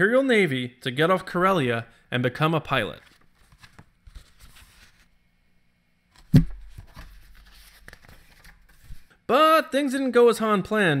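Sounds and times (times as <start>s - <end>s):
book pages rustling: 3.0s - 5.2s, 6.2s - 9.1s
sharp thump: 6.3s - 6.6s.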